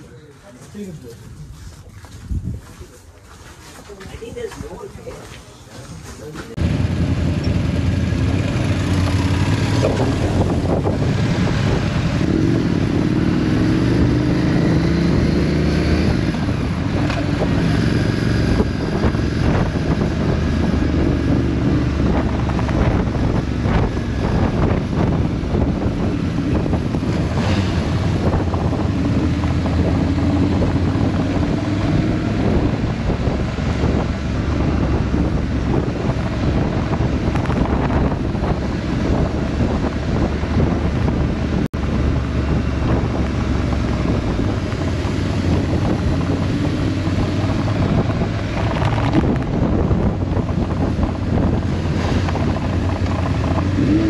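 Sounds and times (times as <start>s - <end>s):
wind noise on microphone: 1.2s - 3.2s, 7.7s - 54.0s
motorcycles riding by: 6.6s - 13.1s.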